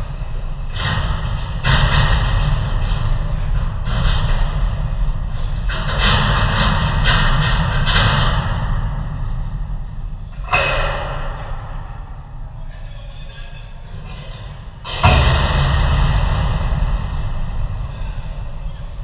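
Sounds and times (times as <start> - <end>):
heavy low rumble: 0.0 - 19.0
sudden thump: 14.9 - 19.0.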